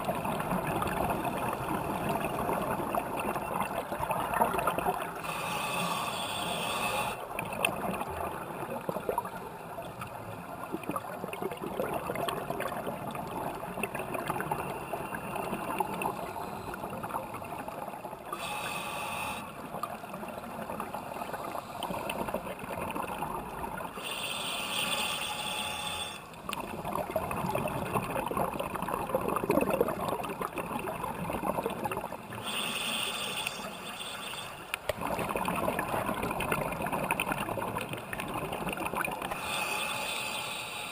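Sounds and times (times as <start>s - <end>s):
regulator inhalation hiss: 5.2s - 7.2s, 18.4s - 19.5s, 24.0s - 26.3s, 32.4s - 34.6s, 39.4s - 40.9s
exhaled bubbles rushing: 26.5s - 32.3s, 34.9s - 39.4s.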